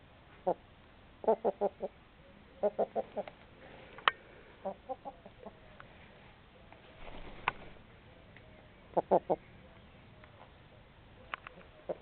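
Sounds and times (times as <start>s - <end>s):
chickens clucking: 4.6s - 5.7s.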